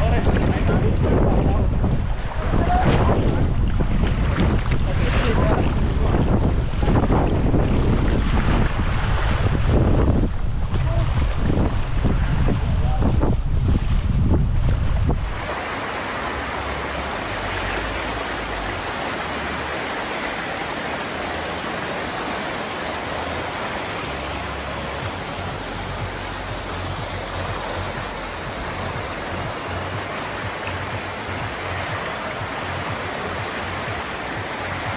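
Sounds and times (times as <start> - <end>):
river water rushing: 15.0 - 34.9.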